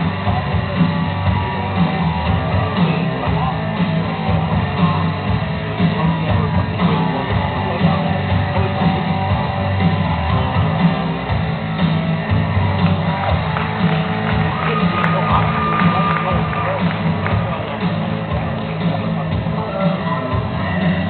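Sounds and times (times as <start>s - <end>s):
loud rock music with guitar: 0.0s - 21.0s.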